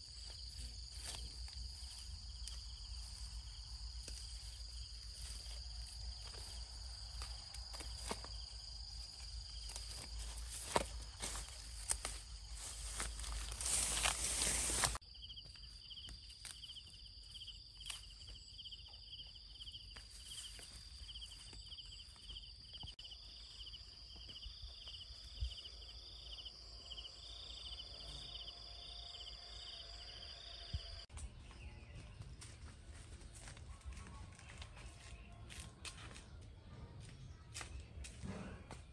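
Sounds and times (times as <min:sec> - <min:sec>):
insects high whine: 0:00.0 - 0:31.1
insects pulsing chirp: 0:00.0 - 0:31.1.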